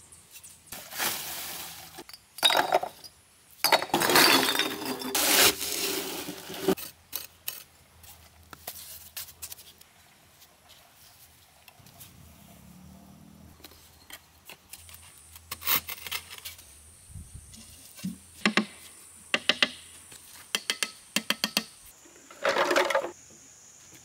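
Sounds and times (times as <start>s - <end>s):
sand pouring from wheelbarrow: 0.8s - 2.0s, 4.1s - 6.8s
shovel scraping sand: 4.1s - 7.7s.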